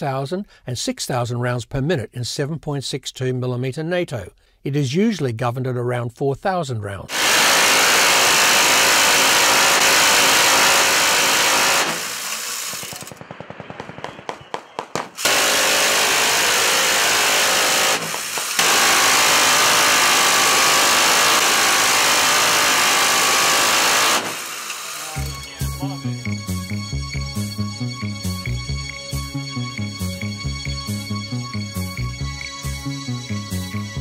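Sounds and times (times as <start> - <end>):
minigun firing bursts: 7.1 - 25.6
fast mechanical clicking: 15.2 - 25.1.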